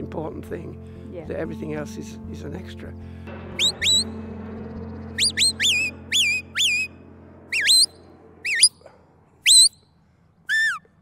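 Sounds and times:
metal whistle short sharp notes: 3.5 - 4.2, 5.1 - 8.8, 9.4 - 9.8.

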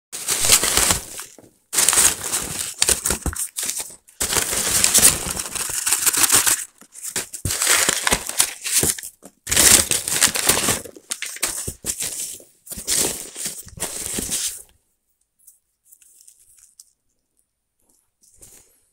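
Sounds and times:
packing peanuts rustling: 0.2 - 14.7.

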